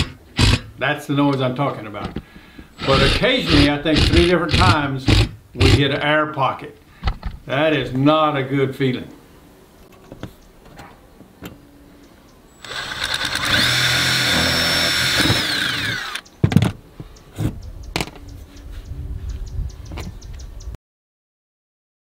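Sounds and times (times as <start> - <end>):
cordless drill whine: 2.8 - 4.3, 12.6 - 16.2.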